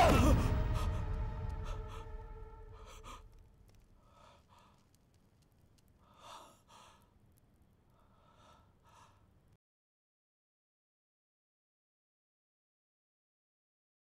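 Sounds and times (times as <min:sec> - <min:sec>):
man breathing heavily: 0:00.0 - 0:03.4, 0:04.0 - 0:05.0, 0:06.0 - 0:07.2, 0:08.0 - 0:09.3.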